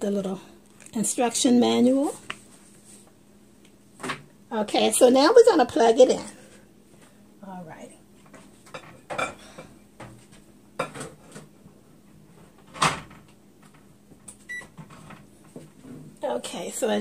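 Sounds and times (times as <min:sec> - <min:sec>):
microwave electronic beep: 0:14.5 - 0:14.7.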